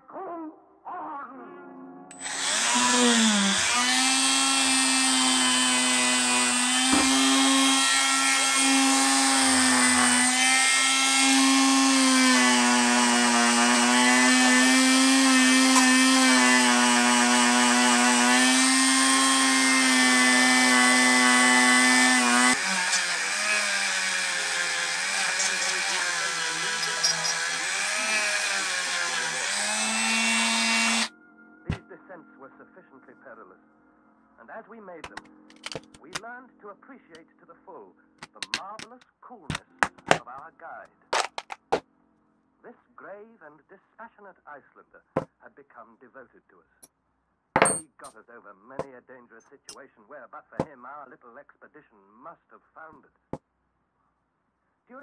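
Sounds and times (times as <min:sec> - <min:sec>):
rotary tool whine polishing metal: 0:02.1 - 0:31.1.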